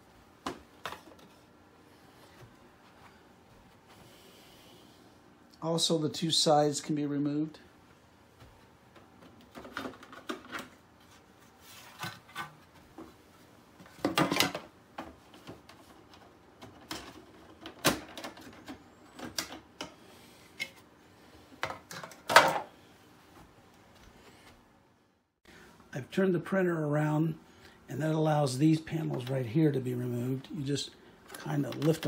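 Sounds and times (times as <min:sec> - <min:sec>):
plastic clatter: 0:09.2 - 0:10.8.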